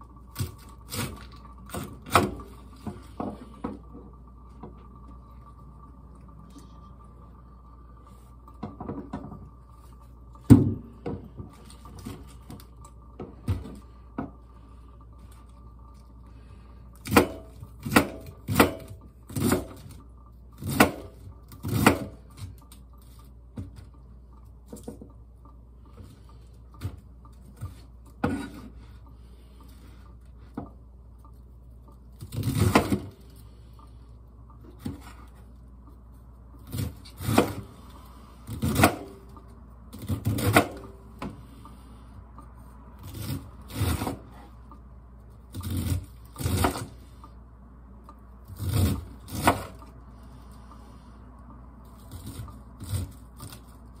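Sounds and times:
knife cutting cabbage on board: 20.6 - 22.5, 32.2 - 33.1, 36.6 - 37.8, 38.4 - 39.2, 39.9 - 40.8, 43.0 - 44.5, 45.5 - 47.0, 48.4 - 49.9, 52.0 - 54.0.

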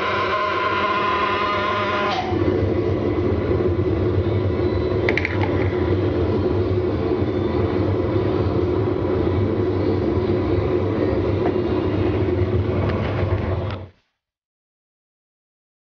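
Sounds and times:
machinery humming: 0.0 - 14.0.

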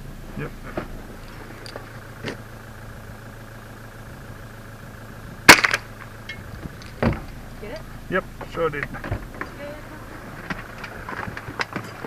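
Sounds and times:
rifle shot with echo: 5.5 - 5.9.

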